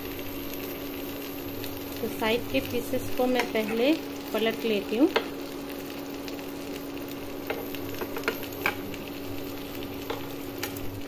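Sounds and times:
chicken sizzling in a pan: 0.0 - 11.0
steady low hum: 0.0 - 11.0
utensil clicking on pan: 3.3 - 3.8.

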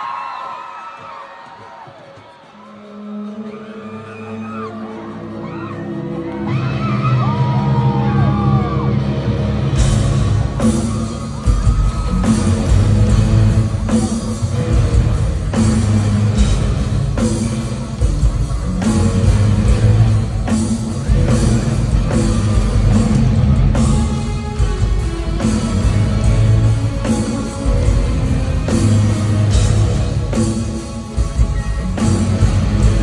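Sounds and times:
live rock band: 8.3 - 33.0
distorted electric guitars: 8.6 - 33.0
drum kit: 9.7 - 33.0.

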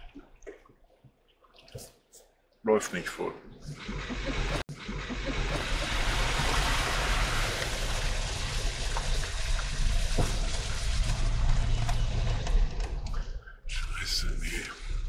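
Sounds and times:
water splashing against wheels: 3.8 - 12.6.

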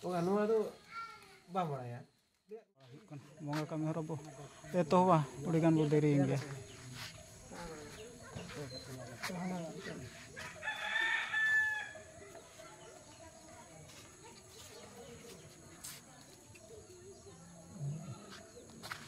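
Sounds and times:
quiet outdoor background: 0.0 - 19.0
rooster crowing: 10.4 - 12.2.

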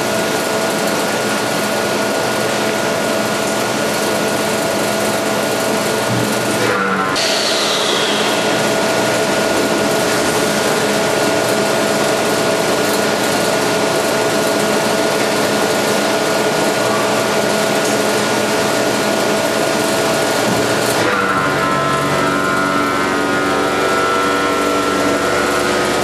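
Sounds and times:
machine humming: 0.0 - 26.0
packaging machine hissing: 7.2 - 10.8.

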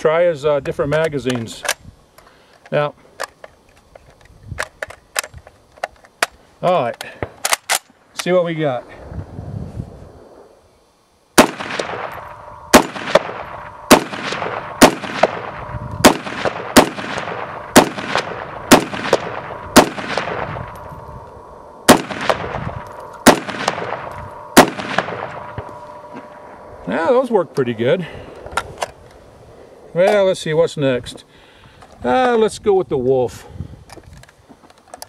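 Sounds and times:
rifle shots echoing: 11.4 - 26.8.

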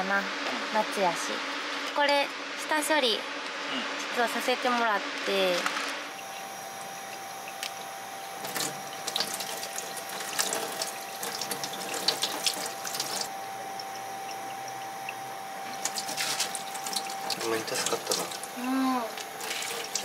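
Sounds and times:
tap water running into sink: 6.2 - 14.5, 15.1 - 20.0.

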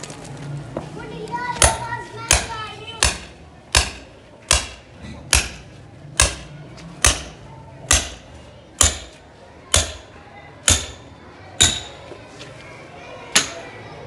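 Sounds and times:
hammer striking steel chisel: 1.6 - 12.0, 13.3 - 13.7.

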